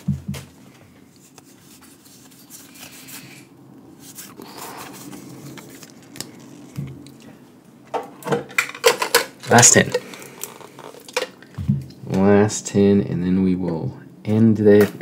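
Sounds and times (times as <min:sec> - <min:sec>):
cards and foil wrapper rustling: 0:00.7 - 0:07.3, 0:08.5 - 0:11.5.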